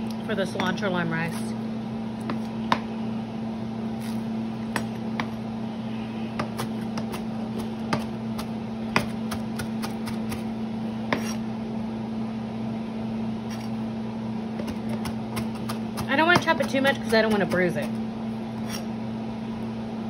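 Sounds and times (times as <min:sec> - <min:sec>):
steady low hum: 0:00.0 - 0:20.0
knife chopping on plastic board: 0:02.2 - 0:02.9, 0:04.0 - 0:05.4, 0:06.4 - 0:10.5, 0:11.1 - 0:11.4, 0:14.6 - 0:17.9.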